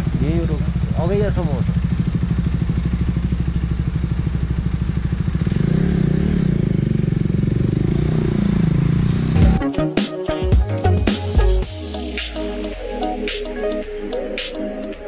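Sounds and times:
motorcycle engine idling and revving: 0.0s - 9.6s.

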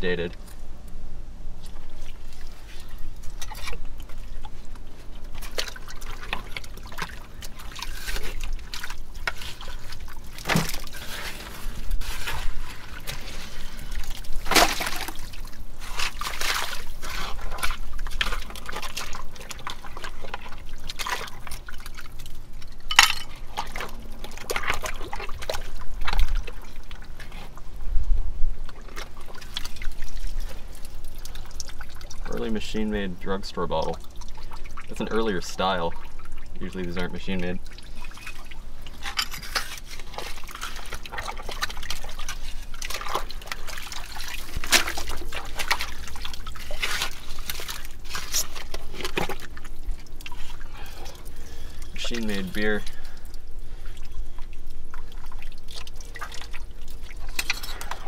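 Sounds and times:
water and muck sloshing: 1.5s - 58.0s
bottles knocking and scraping: 22.8s - 23.5s, 38.1s - 41.4s, 57.3s - 58.0s.

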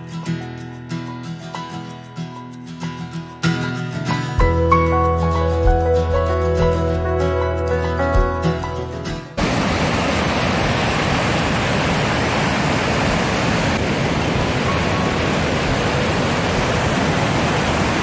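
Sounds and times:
music: 0.0s - 9.4s
river rushing over rapids: 9.4s - 18.0s.

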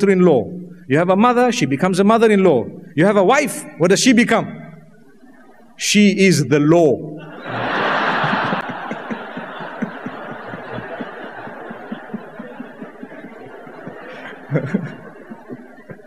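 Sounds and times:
audience laughing: 7.2s - 16.0s.

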